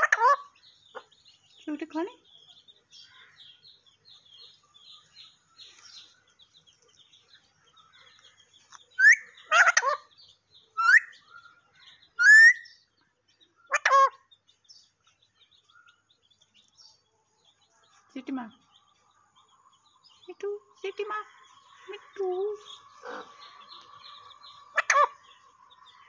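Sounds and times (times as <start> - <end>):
parakeet squawking and chattering: 0.0 - 2.0, 9.0 - 12.7, 13.6 - 14.3, 20.4 - 25.4.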